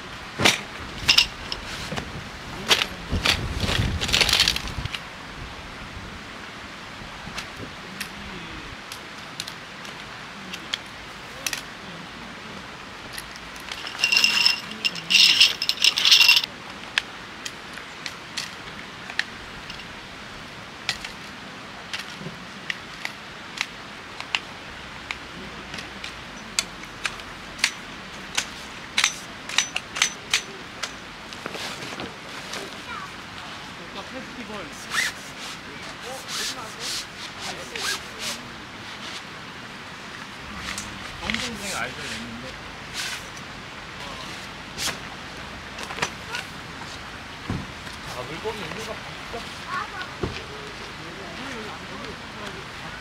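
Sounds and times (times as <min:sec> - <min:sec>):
metal chair frame clicking: 0:13.1 - 0:16.5, 0:26.7 - 0:30.5
metallic scraping and ringing: 0:13.6 - 0:16.5.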